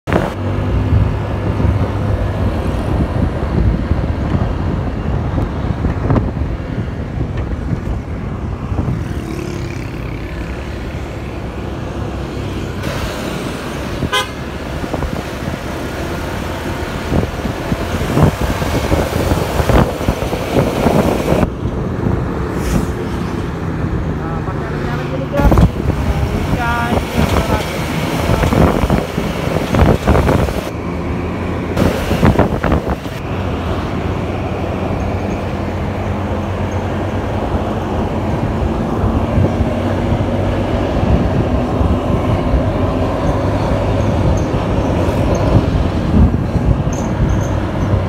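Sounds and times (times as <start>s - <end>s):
engine and wind rumble: 0.0s - 48.0s
horn toot: 14.0s - 14.5s.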